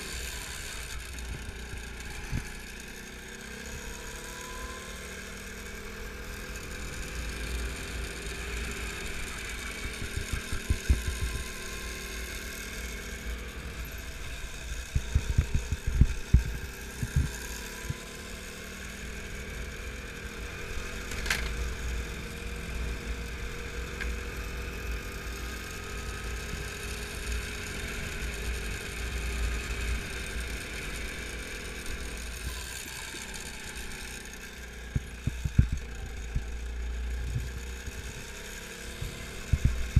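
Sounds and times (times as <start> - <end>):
kart engine running: 0.0 - 39.9
sharp knocks and rattles: 34.9 - 36.6.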